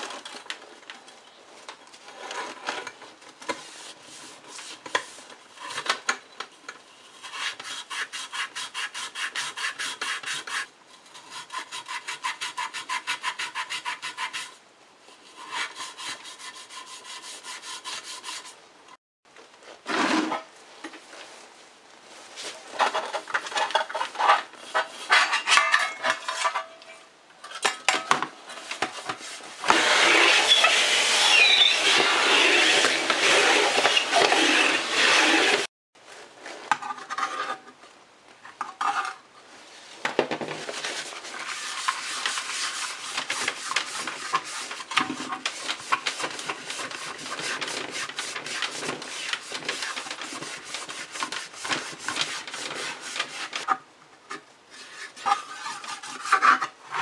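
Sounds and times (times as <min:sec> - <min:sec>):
cloth rubbing on sheet metal: 0:28.5 - 0:35.7, 0:40.8 - 0:53.7.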